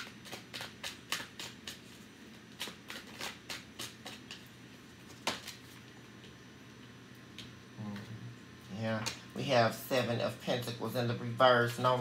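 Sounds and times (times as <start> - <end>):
cards being shuffled: 0.0 - 6.0.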